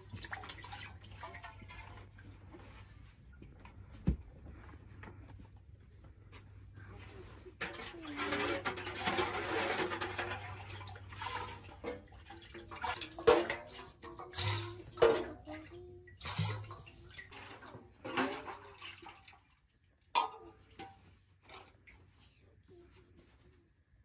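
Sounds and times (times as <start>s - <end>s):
water pouring into a metal pot: 0.0s - 2.2s, 7.6s - 19.5s
splashes and knocks: 0.0s - 2.4s, 7.6s - 21.8s.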